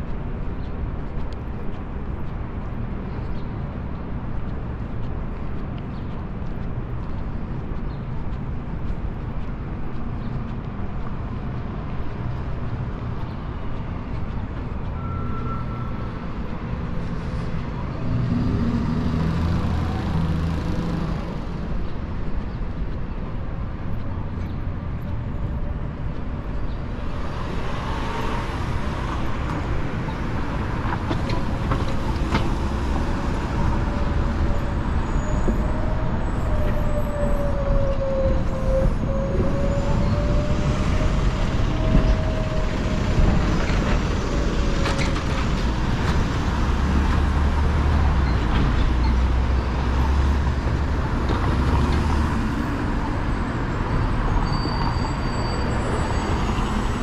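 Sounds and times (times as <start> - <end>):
street traffic rumble: 0.0 - 57.0
vehicle passing close: 18.0 - 21.5.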